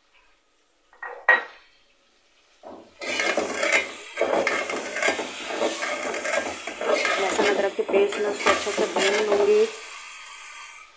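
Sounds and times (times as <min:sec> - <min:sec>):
meat sizzling and scraping in pot: 0:02.6 - 0:10.9.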